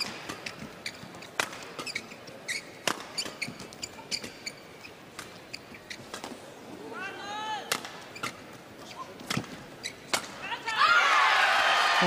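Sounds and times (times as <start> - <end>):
racket hitting shuttlecock: 0.0 - 4.5, 7.7 - 8.4, 9.2 - 10.5
shoes squeaking on court: 0.0 - 6.7, 7.8 - 10.4.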